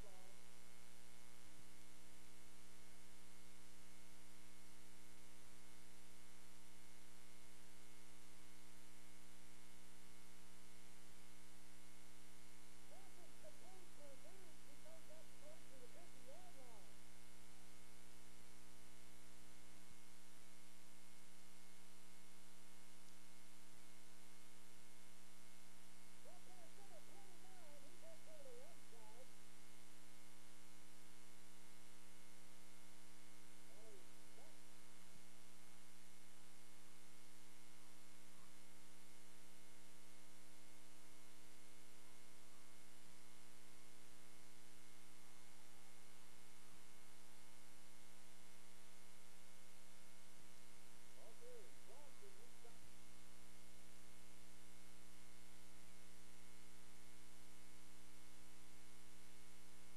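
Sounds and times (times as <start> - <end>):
faint wavering sounds: 0.0 - 1.8, 10.8 - 19.5, 25.2 - 32.1
electrical hum with hiss: 0.0 - 59.9.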